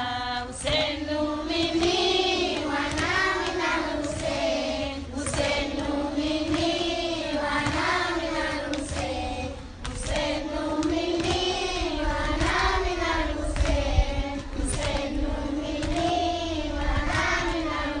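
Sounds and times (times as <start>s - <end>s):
children chanting in unison: 0.6s - 18.0s
hand slaps on chest: 7.6s - 11.5s, 13.5s - 15.2s.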